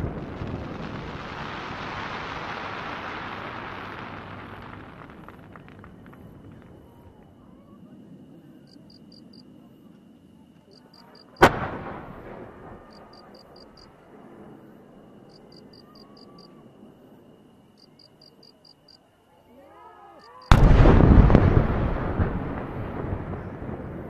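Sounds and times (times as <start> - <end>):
firecracker bang with echo: 11.4 - 13.0, 20.5 - 23.9.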